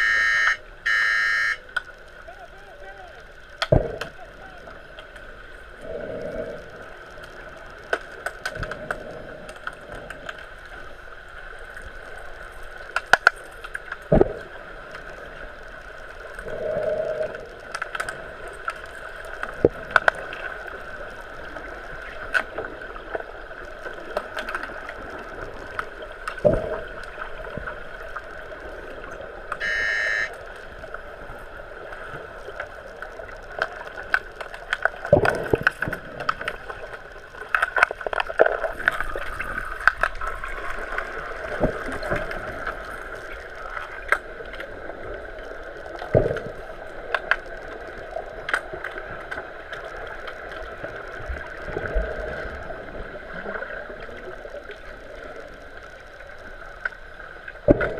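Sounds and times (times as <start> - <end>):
underwater electronic buzzer: 0.0 - 2.1, 29.5 - 30.7
steady hum: 0.0 - 57.9
bubbling: 2.3 - 57.9
sticks and puck clacking underwater: 3.6 - 4.2, 12.8 - 15.1, 31.9 - 44.7.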